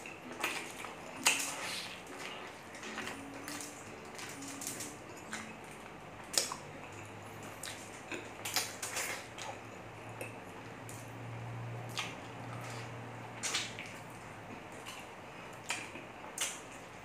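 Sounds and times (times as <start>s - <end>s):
chewing and lip-smacking: 0.0s - 11.1s, 11.8s - 17.0s.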